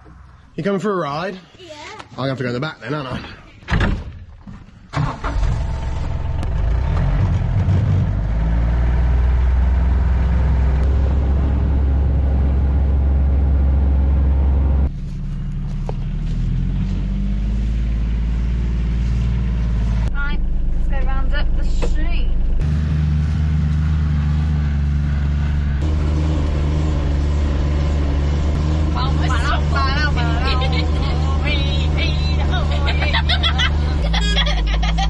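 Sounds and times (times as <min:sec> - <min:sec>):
thump: 0:03.7 - 0:04.3
diesel engine running: 0:05.0 - 0:35.0.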